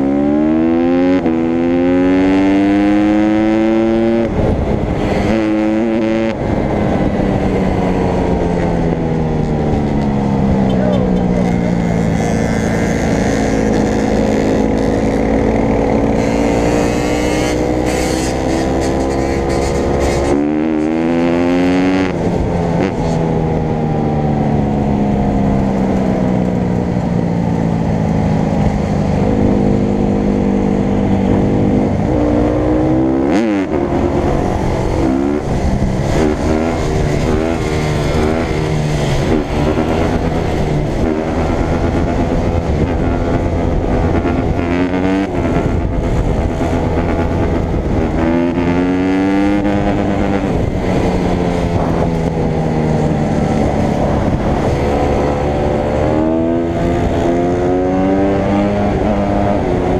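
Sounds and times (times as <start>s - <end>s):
dirt bike engine revving: 0.0s - 6.4s, 10.4s - 22.2s, 31.2s - 59.9s.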